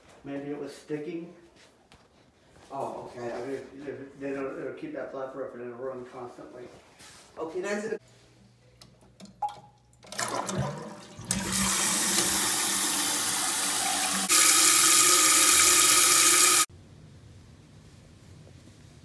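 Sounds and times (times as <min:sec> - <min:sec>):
toilet tank water rushing: 0:10.0 - 0:16.7.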